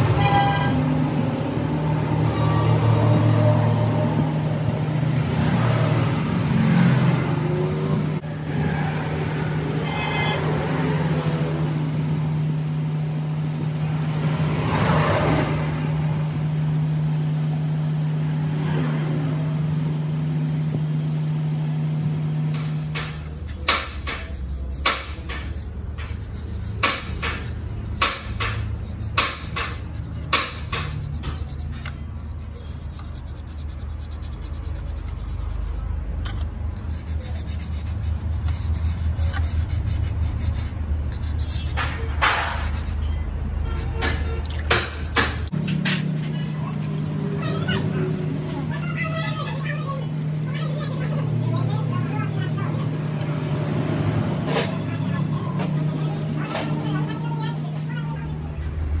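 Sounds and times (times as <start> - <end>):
vehicle engine drone: 0.0 - 59.0
sandpaper rasping on metal: 22.5 - 35.9, 36.8 - 43.1, 45.6 - 58.2.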